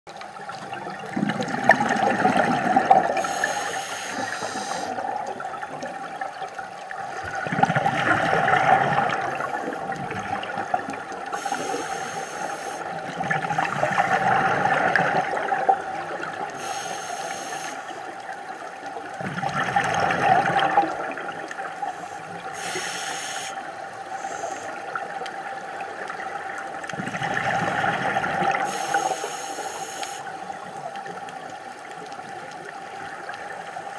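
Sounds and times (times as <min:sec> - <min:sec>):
bubbling gush: 0:00.2 - 0:33.9
diver breathing through regulator: 0:03.0 - 0:05.1, 0:11.3 - 0:13.0, 0:16.5 - 0:18.0, 0:22.0 - 0:24.8, 0:28.5 - 0:30.3.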